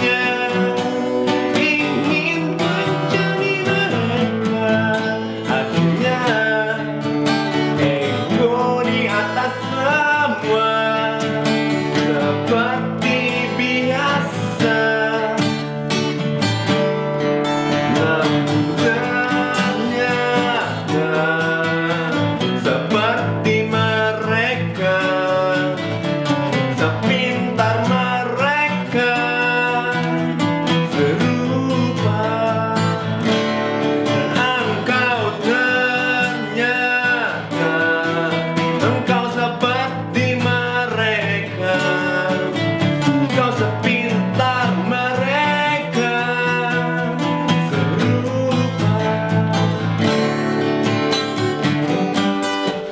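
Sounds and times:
acoustic guitars playing: 0.0s - 52.9s
man singing: 0.0s - 52.9s.

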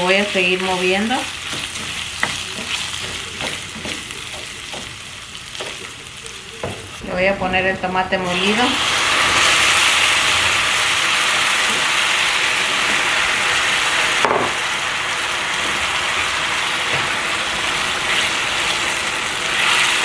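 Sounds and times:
tomato sizzling in hot oil: 0.0s - 20.0s
wooden spoon stirring: 0.1s - 7.7s.

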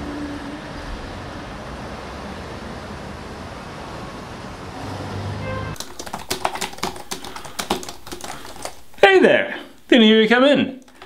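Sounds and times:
city traffic noise: 0.0s - 5.8s
typing on laptop keyboard: 5.8s - 9.0s, 10.8s - 11.0s.

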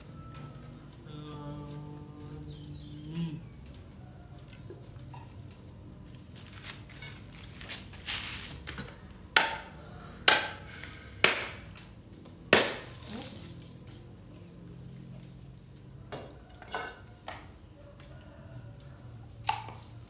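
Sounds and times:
chilies snapping and crackling: 19.4s - 20.0s.

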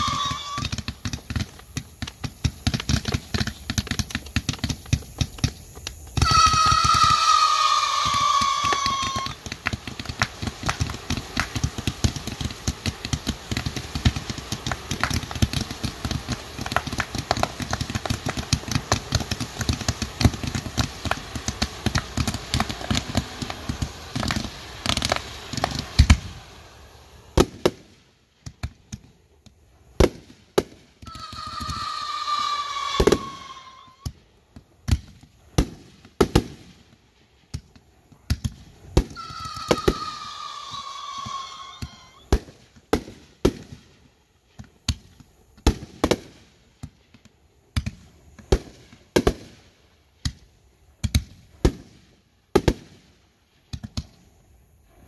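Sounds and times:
falling whistle: 0.0s - 0.8s, 6.2s - 9.4s, 31.0s - 34.1s, 39.1s - 42.3s
firecrackers crackling and banging: 0.0s - 55.0s.

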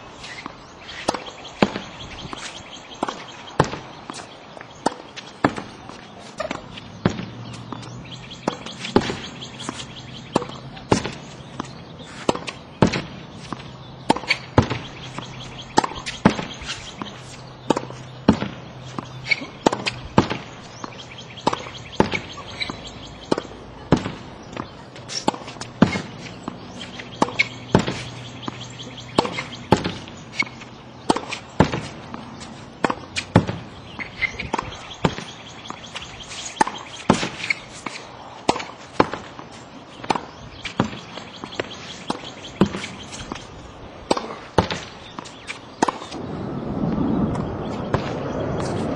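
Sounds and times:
tennis ball pops against backboard: 44.1s - 44.9s.

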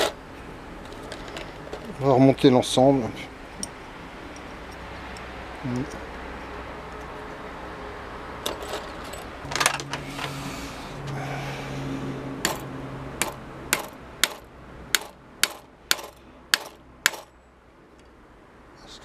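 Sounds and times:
metal parts tapping on vise: 8.4s - 10.3s.

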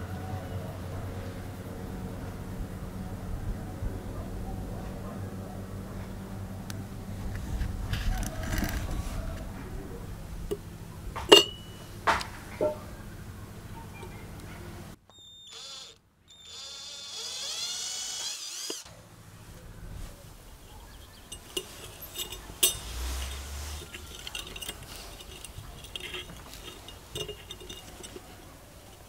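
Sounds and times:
light clicks and clinks: 11.2s - 12.8s, 20.7s - 29.0s
electric drill whining: 15.1s - 18.9s.

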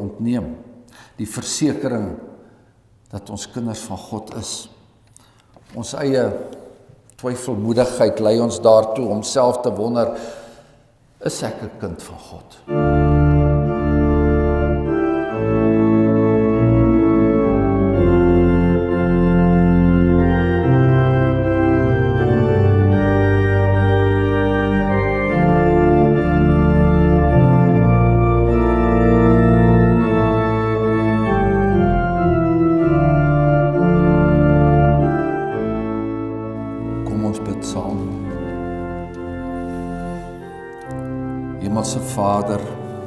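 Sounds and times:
organ music slow chords: 12.6s - 43.0s.

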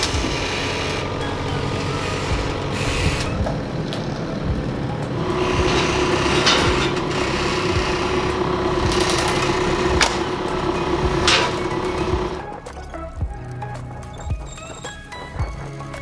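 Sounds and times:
forklift engine running: 0.0s - 12.6s
steady whine: 0.0s - 15.7s.

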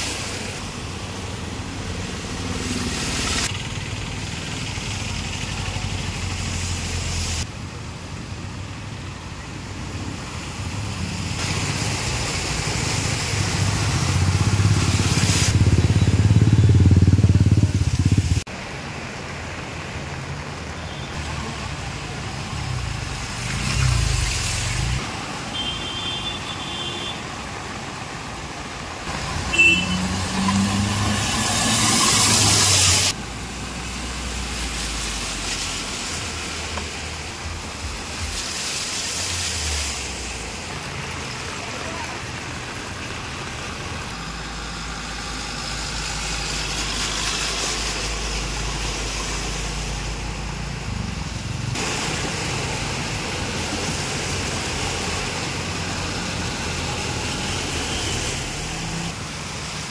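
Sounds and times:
loud rushing spray: 0.0s - 7.5s, 10.0s - 59.9s
rain and water noise: 0.0s - 59.9s
vehicle engines: 0.0s - 59.9s
tyres splashing through water: 9.0s - 59.9s
car horn beeping: 25.5s - 27.2s, 29.4s - 30.3s.

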